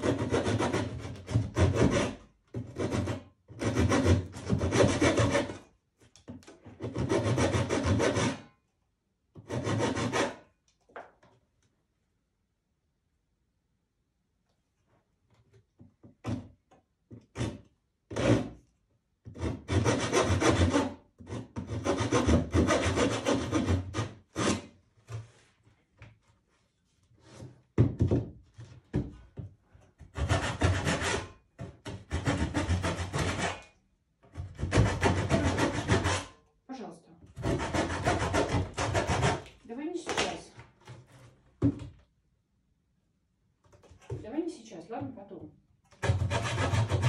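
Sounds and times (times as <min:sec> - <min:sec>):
metal scraper rasping on canvas: 0:00.0 - 0:05.7, 0:06.5 - 0:08.5, 0:09.4 - 0:10.5, 0:19.3 - 0:24.8, 0:30.0 - 0:33.8, 0:34.4 - 0:36.4, 0:37.4 - 0:39.6, 0:46.0 - 0:47.0.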